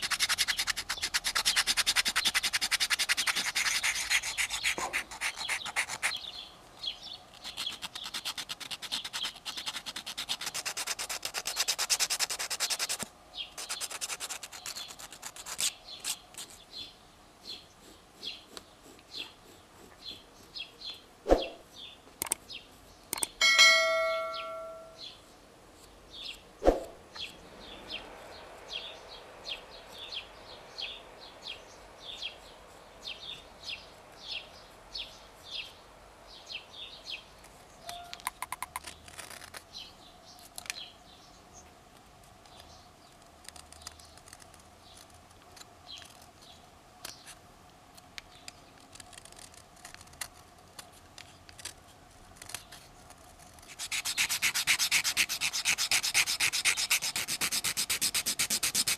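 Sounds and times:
knife scraping wood: 7.3 - 16.6, 48.8 - 58.9.

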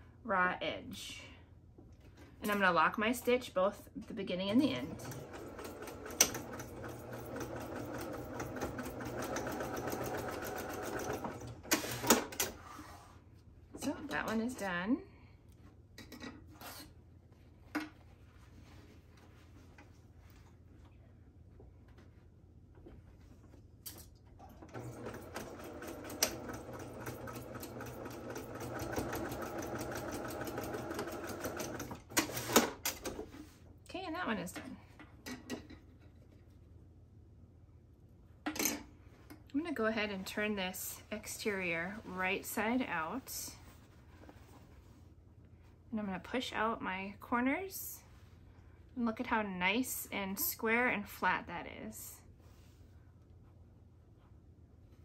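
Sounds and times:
sewing machine stitching: 4.9 - 12.6, 24.5 - 32.8.

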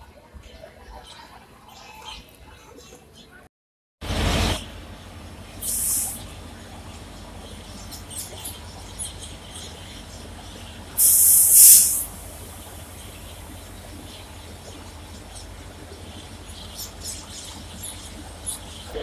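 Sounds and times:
compressed air hiss: 5.6 - 6.2, 11.0 - 12.3.

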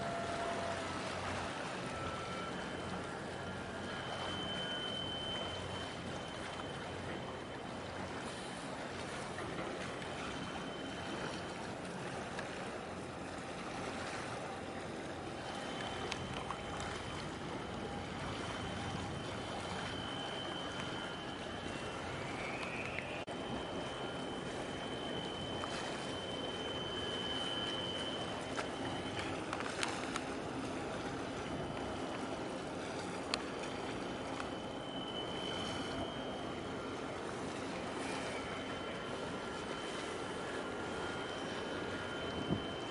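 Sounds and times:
faint high tone: 0.0 - 7.9
water washing: 0.0 - 42.9
wind: 0.0 - 42.9.

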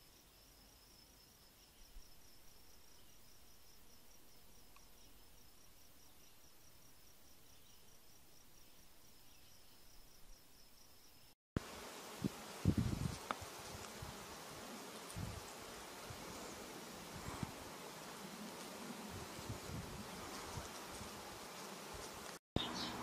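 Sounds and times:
insect chirping pulsed trill: 0.0 - 11.4.

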